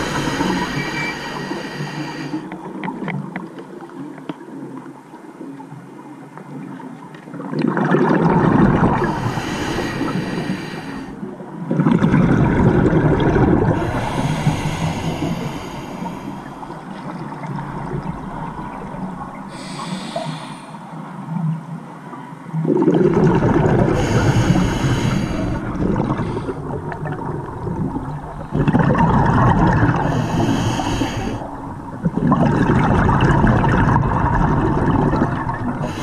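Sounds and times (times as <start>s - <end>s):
underwater bubbles rumbling: 7.3s - 21.8s, 22.6s - 36.0s.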